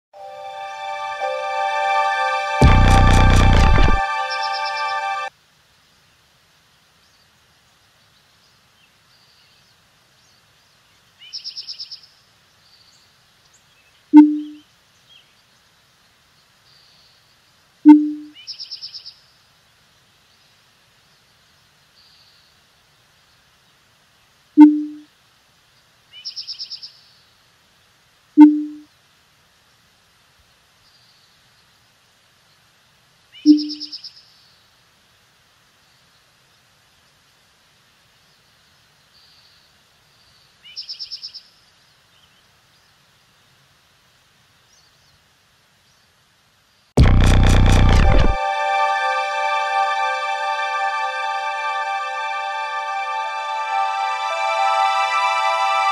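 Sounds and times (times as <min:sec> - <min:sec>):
high chirping trills: 0:00.2 - 0:05.3.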